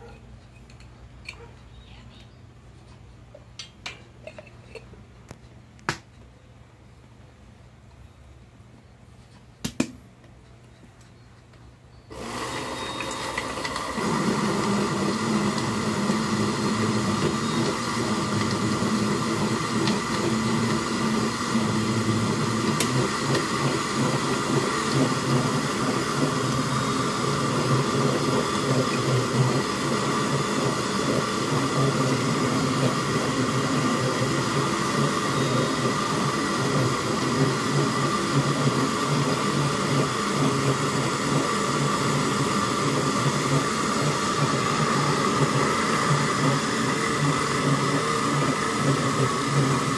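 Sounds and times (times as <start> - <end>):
blender motor whining: 12.1 - 49.9.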